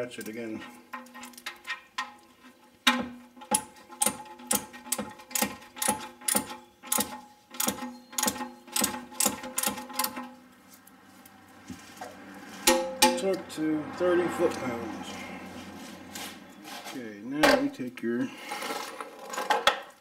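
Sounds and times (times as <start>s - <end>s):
hand ratchet clicking: 3.4s - 10.2s.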